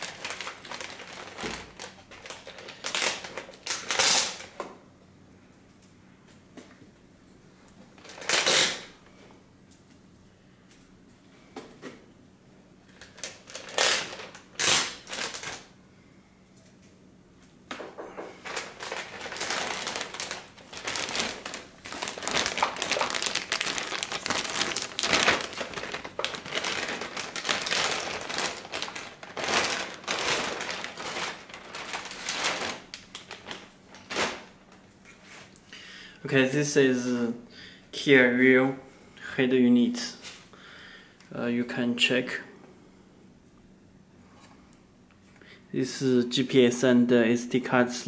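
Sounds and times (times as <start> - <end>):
plastic bag crinkling: 0.0 - 4.6, 8.0 - 9.0, 12.9 - 15.7, 18.1 - 35.6.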